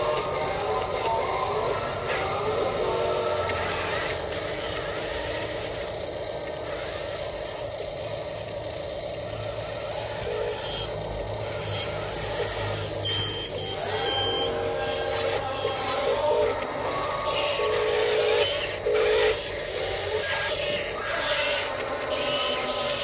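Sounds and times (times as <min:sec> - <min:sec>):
simulated truck engine: 0:00.0 - 0:23.0
reversing beep: 0:13.0 - 0:15.9.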